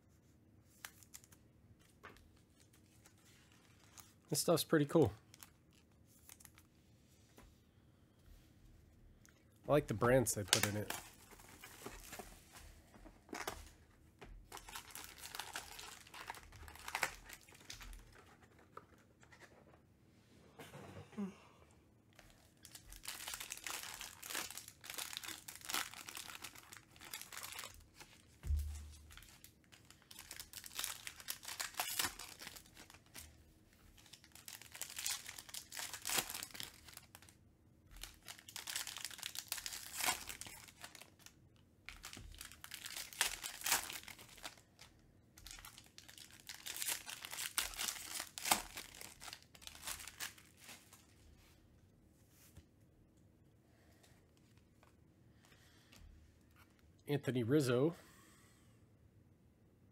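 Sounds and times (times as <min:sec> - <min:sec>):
foil wrappers crinkling and tearing: 0:10.1 - 0:12.3, 0:14.5 - 0:18.6, 0:22.6 - 0:51.2.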